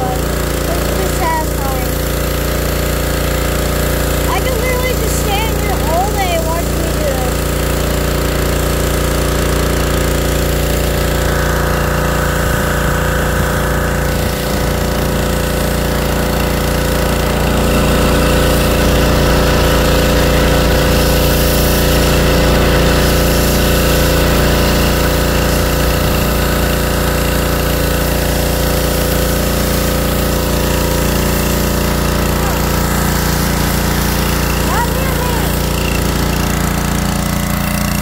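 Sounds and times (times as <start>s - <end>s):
pressure washer motor droning: 0.0s - 38.0s
high-pressure spray hissing on metal: 14.2s - 37.0s.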